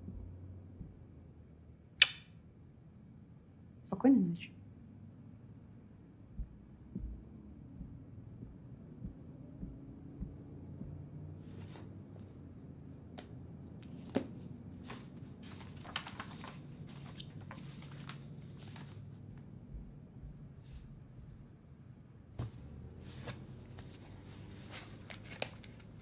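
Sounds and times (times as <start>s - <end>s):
low steady hum: 0.0s - 26.0s
paper pages rustling: 11.4s - 11.9s, 13.1s - 19.2s, 22.4s - 26.0s.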